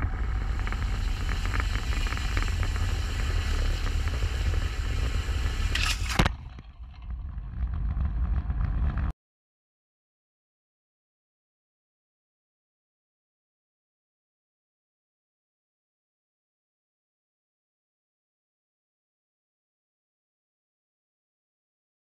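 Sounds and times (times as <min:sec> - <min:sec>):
propeller engine at full power: 0:00.0 - 0:09.1
wind rumble on microphone: 0:00.0 - 0:09.1.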